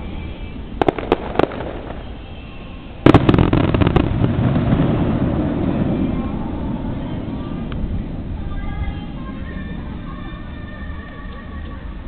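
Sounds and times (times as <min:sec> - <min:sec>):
firework burst: 0:00.0 - 0:08.4
fireworks cracks: 0:00.0 - 0:08.4
low rumble: 0:03.0 - 0:11.0.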